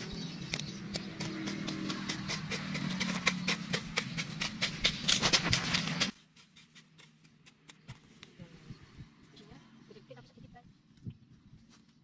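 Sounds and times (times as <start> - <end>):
footsteps through dry growth: 4.7 - 8.4.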